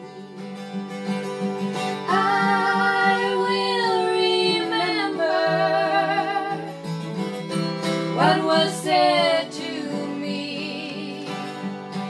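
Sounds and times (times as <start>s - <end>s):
acoustic guitar: 0.0s - 12.0s
woman singing with vibrato: 2.1s - 6.8s, 8.2s - 11.6s.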